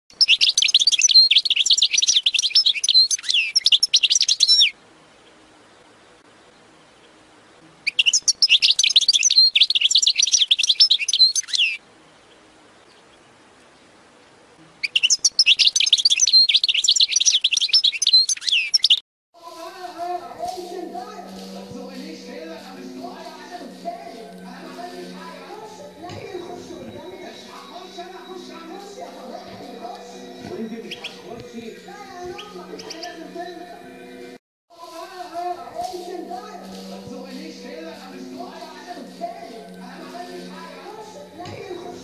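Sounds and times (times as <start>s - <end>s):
goldfinch twittering song: 0.1s - 13.9s, 14.8s - 19.0s, 24.2s - 34.3s.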